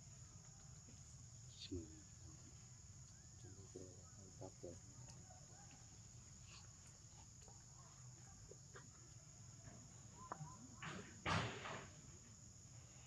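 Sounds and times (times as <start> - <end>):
high insect drone: 0.0 - 13.0
faint animal calls: 1.5 - 11.2.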